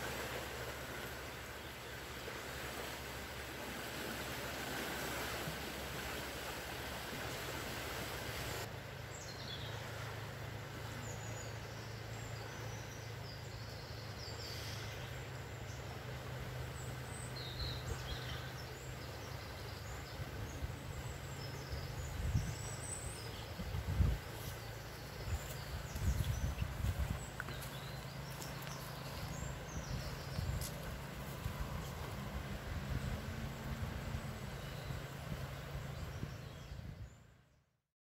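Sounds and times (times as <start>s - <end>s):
river rushing: 0.0s - 36.6s
small birds chirping: 16.7s - 32.2s.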